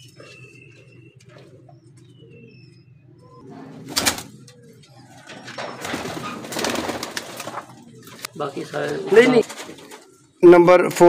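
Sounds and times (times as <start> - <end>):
pigeons cooing: 0.0 - 10.4.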